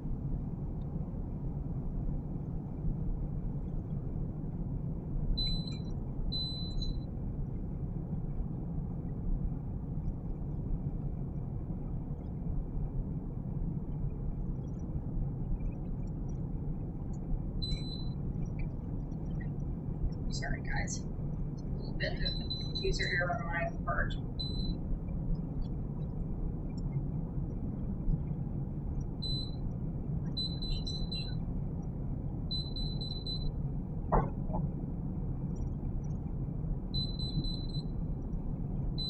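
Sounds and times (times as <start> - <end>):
low rumble: 0.0 - 39.0.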